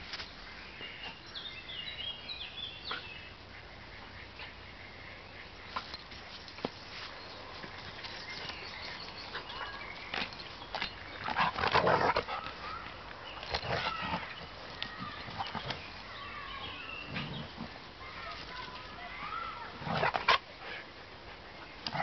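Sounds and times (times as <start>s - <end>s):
dogs growling while play-fighting: 9.3s - 12.6s, 13.4s - 14.6s, 17.0s - 17.8s, 19.7s - 20.8s.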